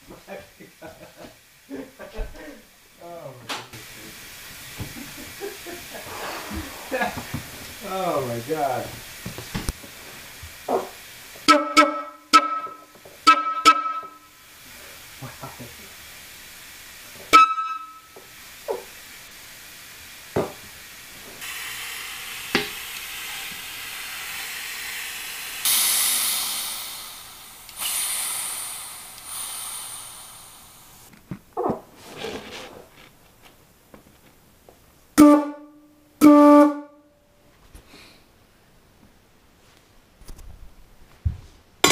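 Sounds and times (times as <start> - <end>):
compressed air hissing: 3.8 - 31.1
air horn blasts: 11.4 - 14.4, 17.3 - 18.2, 35.2 - 37.1.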